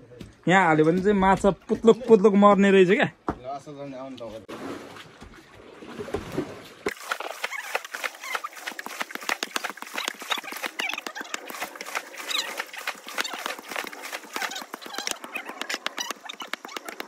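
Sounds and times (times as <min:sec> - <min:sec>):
stone knocking on stone: 0:14.2 - 0:17.0.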